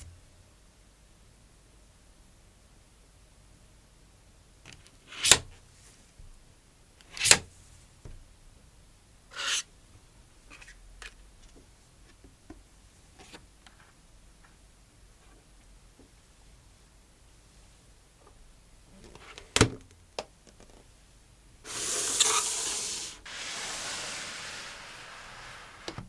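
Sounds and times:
paperboard tearing: 21.7s - 25.9s.

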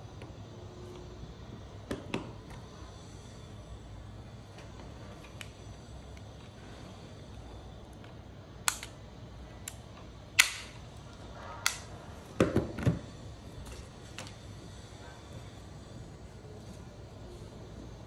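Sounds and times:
sharp plastic clicks: 8.6s - 9.0s, 10.4s - 10.8s.

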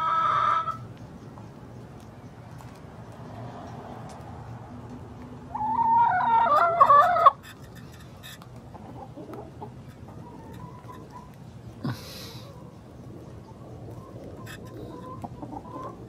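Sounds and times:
chicken calling: 0.0s - 0.9s, 5.5s - 7.6s, 8.7s - 16.0s.

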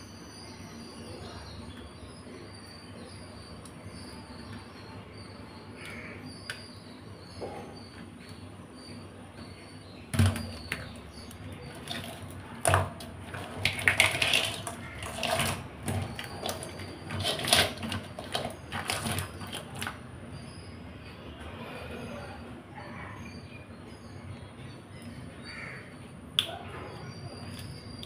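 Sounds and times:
crab shells clattering: 10.1s - 20.0s
scraping and rustling: 11.6s - 20.0s.

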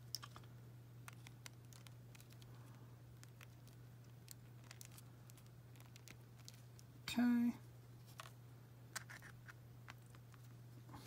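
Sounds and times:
plastic pieces clicking: 0.0s - 6.9s
steady low hum: 0.0s - 11.0s.

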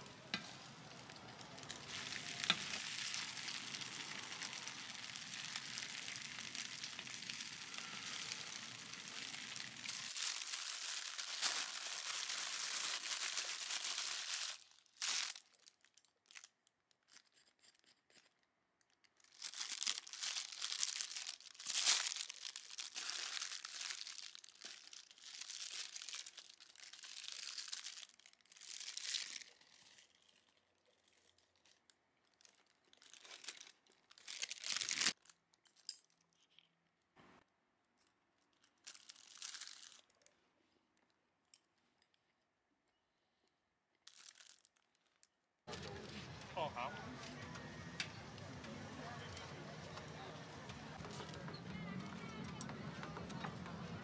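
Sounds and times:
plastic bag crinkling: 0.0s - 17.0s, 18.8s - 35.6s, 38.4s - 40.3s, 44.0s - 46.4s.

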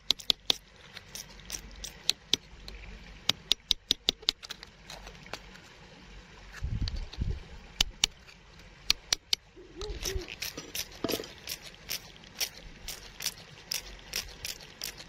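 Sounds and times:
stick scraping gravel: 9.9s - 15.0s.

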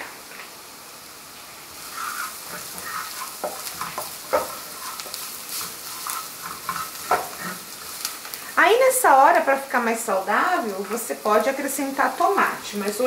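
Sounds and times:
food sizzling in a frying pan: 0.0s - 13.0s
spatula scraping a pan: 1.8s - 8.3s.

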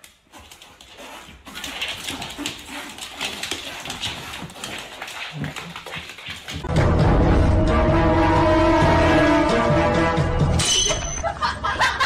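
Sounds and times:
dog vocal noises: 0.2s - 6.6s.

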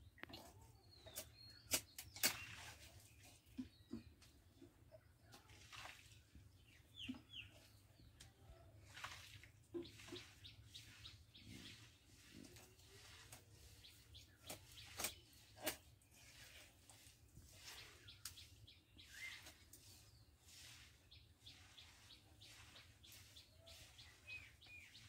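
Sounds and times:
faint bird chirps: 17.6s - 25.0s.

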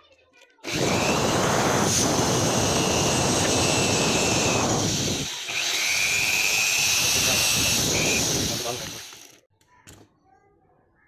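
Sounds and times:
electric drill whining: 0.6s - 9.4s.

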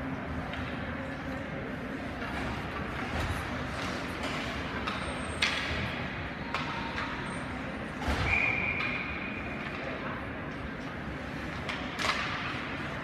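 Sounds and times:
rink and crowd hum: 0.0s - 13.0s
hockey sticks and puck knocks: 2.2s - 13.0s
referee's whistle: 8.2s - 9.0s.

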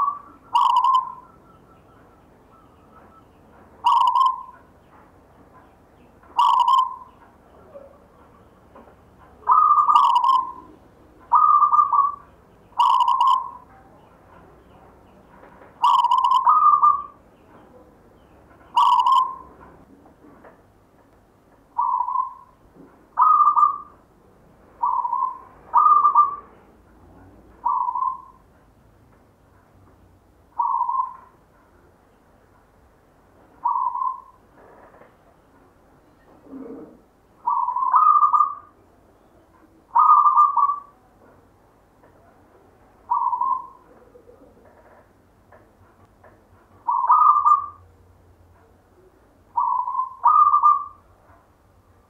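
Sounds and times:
dove cooing: 0.0s - 1.9s, 3.8s - 4.6s, 6.4s - 8.1s, 9.4s - 13.7s, 15.8s - 17.2s, 18.8s - 19.6s, 21.8s - 22.6s, 23.2s - 24.0s, 24.8s - 26.6s, 27.6s - 28.4s, 30.6s - 31.3s, 33.6s - 34.4s, 36.4s - 38.8s, 39.9s - 41.0s, 43.1s - 44.9s, 46.8s - 47.8s, 49.6s - 51.0s.

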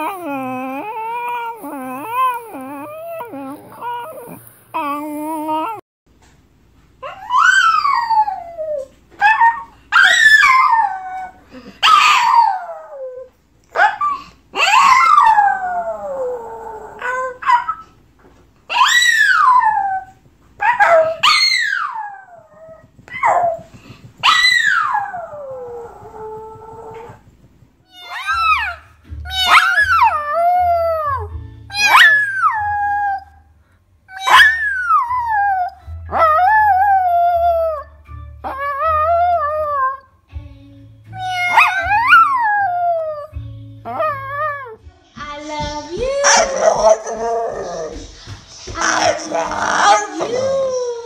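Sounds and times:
dog whining and yowling: 0.0s - 5.8s, 7.0s - 17.9s, 18.7s - 27.2s, 27.9s - 33.4s, 34.1s - 40.0s, 41.2s - 43.3s
small dog howling: 18.7s - 23.6s, 24.2s - 27.2s, 27.9s - 33.3s, 34.1s - 37.9s.

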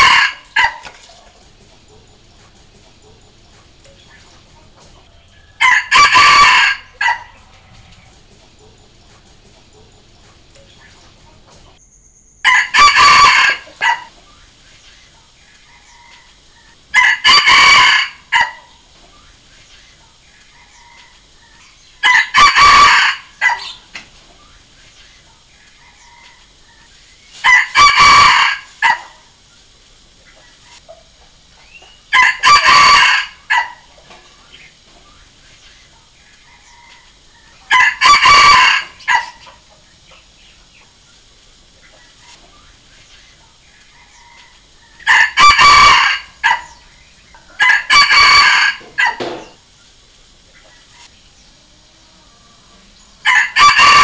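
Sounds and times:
rooster crowing: 0.0s - 1.1s, 4.9s - 8.8s, 12.4s - 14.2s, 15.7s - 18.8s, 20.5s - 23.9s, 27.4s - 29.3s, 32.1s - 34.0s, 36.4s - 39.6s, 43.9s - 46.9s, 47.5s - 49.6s, 51.9s - 54.0s.

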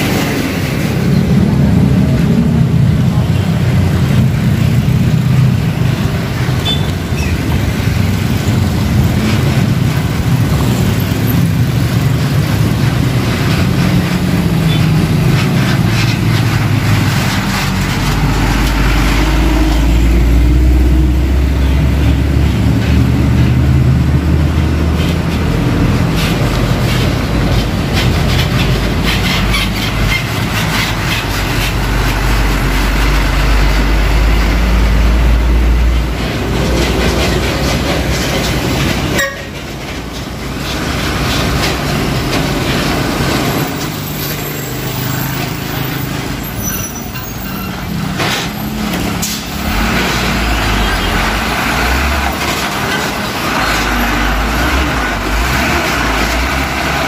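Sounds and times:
diesel truck engines droning: 0.0s - 57.0s
suspension squeaking: 6.5s - 9.3s, 26.1s - 32.3s, 41.3s - 54.9s.

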